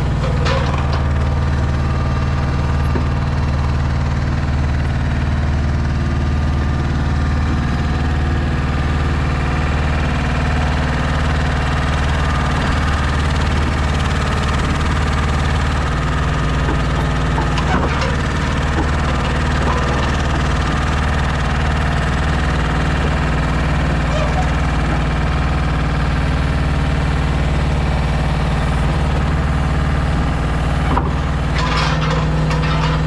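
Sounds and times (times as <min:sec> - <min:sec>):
diesel truck engine idling: 0:00.0 - 0:33.0.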